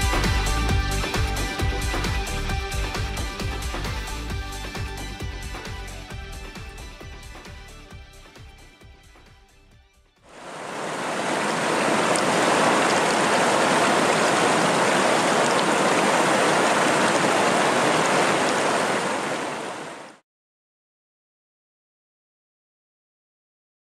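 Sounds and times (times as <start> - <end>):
stream running over stones: 10.3 - 20.2.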